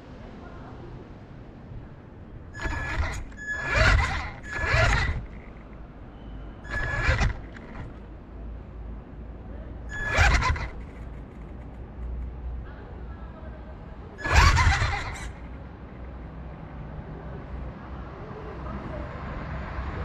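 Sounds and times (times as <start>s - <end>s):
small electric motor whining: 2.6s - 5.6s, 6.6s - 8.0s, 9.9s - 11.0s, 14.2s - 15.4s.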